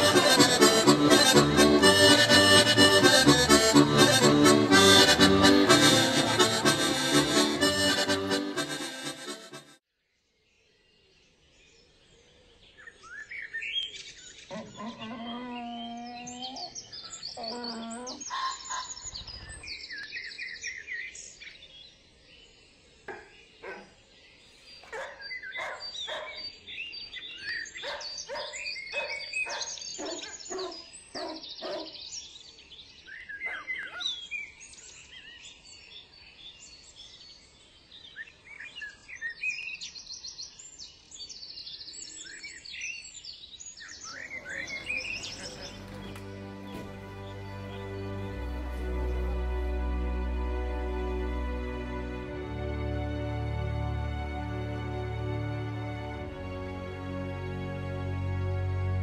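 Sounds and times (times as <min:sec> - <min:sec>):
small birds chirping: 0:10.2 - 0:49.2
low animal call: 0:14.5 - 0:18.5, 0:44.1 - 0:49.4.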